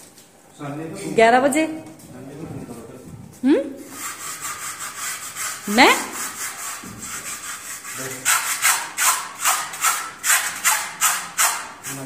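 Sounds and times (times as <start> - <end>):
brush scrubbing cow hide: 3.9 - 12.0.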